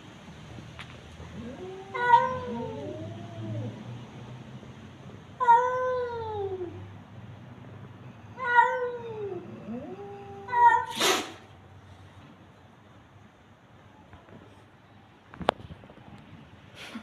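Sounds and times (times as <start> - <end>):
cat yowling: 1.3 - 3.8, 5.4 - 6.9, 8.3 - 11.4
cat hissing: 8.4 - 11.6.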